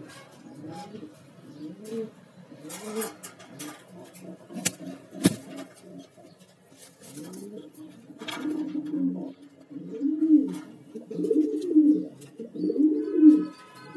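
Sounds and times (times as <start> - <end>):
pigeons cooing: 0.0 - 13.9
rustle: 1.8 - 9.3.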